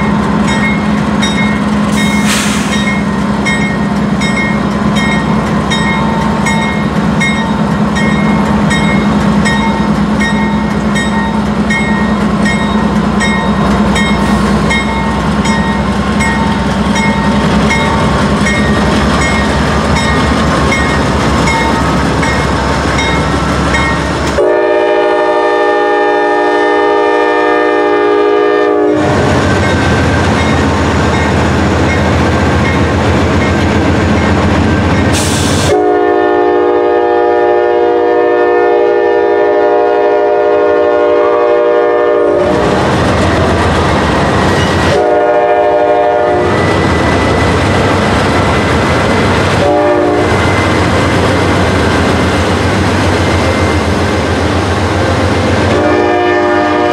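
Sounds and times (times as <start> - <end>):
diesel locomotives running: 0.0 - 56.9
train air horn blasts: 24.3 - 29.2, 35.2 - 42.7, 44.9 - 46.6, 49.5 - 50.6, 55.6 - 56.9.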